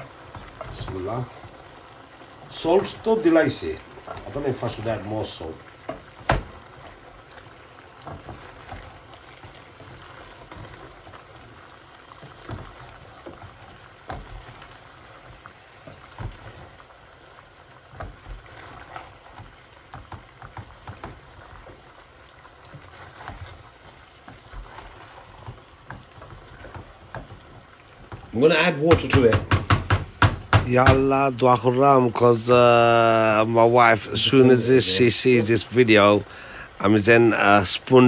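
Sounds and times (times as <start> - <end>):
wooden spoon stirring in a pot: 0.0 - 38.0
spoon knocking against pot: 28.9 - 31.1.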